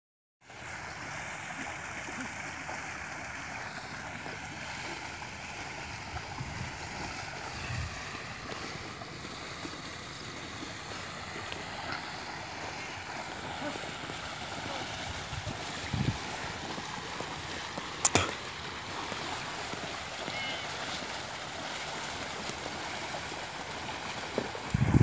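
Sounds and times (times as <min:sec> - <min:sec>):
water sloshing: 0:00.6 - 0:25.0
wind rumbling on microphone: 0:04.8 - 0:11.4, 0:14.2 - 0:17.8, 0:24.1 - 0:25.0.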